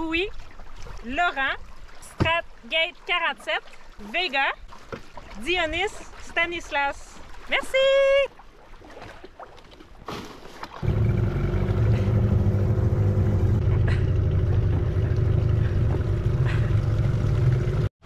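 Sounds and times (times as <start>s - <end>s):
outboard motor running: 10.8s - 17.9s.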